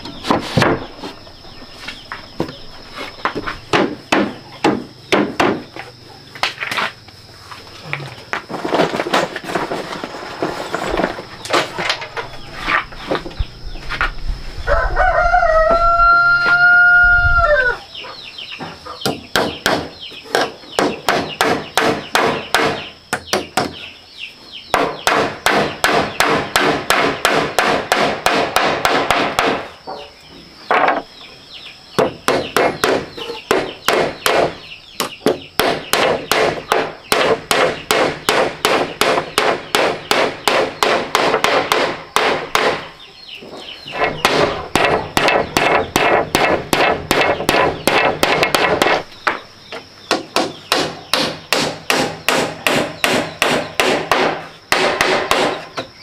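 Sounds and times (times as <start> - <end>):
hammering on wood: 3.2 - 5.8, 18.6 - 23.8, 24.7 - 30.1, 32.0 - 42.9, 44.0 - 49.4, 50.1 - 55.9
rooster crowing: 14.6 - 18.0.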